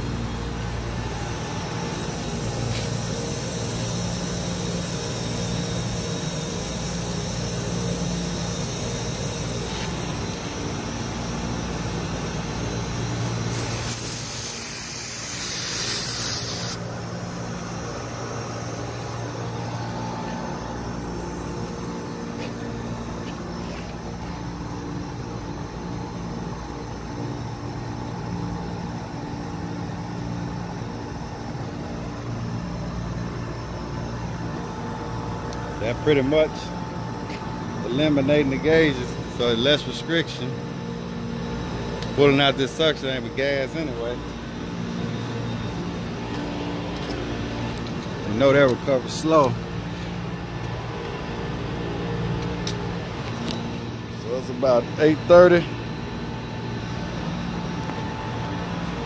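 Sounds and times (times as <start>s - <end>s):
machinery humming: 0.0s - 59.0s
gas hissing from hose fitting: 13.2s - 16.8s.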